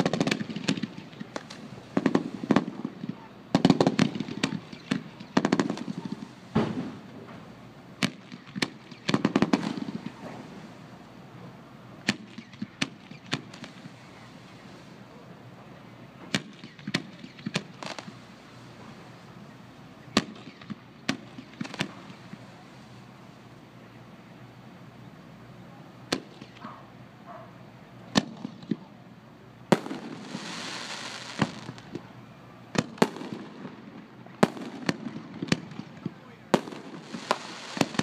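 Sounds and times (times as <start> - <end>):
firework shells bursting with bangs: 0.0 - 10.7, 16.2 - 19.1, 20.1 - 22.6, 29.7 - 32.1, 32.7 - 38.0
crackling firework reports: 0.0 - 25.2, 25.9 - 27.2, 27.8 - 38.0.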